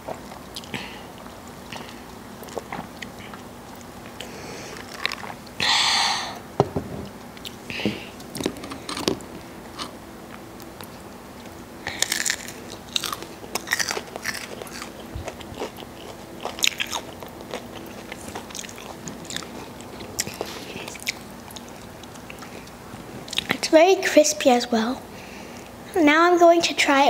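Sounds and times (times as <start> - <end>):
crunchy chewing of chicken nugget: 11.4 - 23.5.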